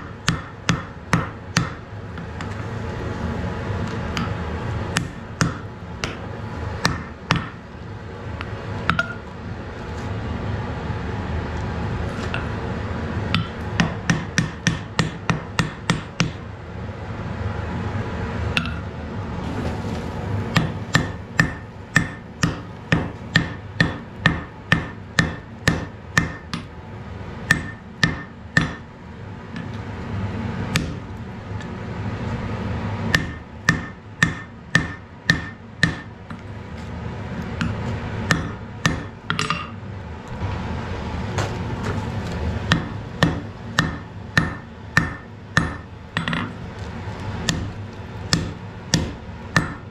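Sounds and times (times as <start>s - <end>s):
hammer striking iron on anvil: 0.0s - 1.8s, 5.0s - 6.2s, 6.8s - 7.6s, 8.9s - 9.2s, 13.3s - 16.4s, 20.6s - 26.7s, 27.4s - 28.9s, 30.8s - 31.0s, 33.1s - 36.4s, 37.6s - 39.8s, 42.7s - 46.6s, 47.5s - 47.7s, 48.3s - 49.9s.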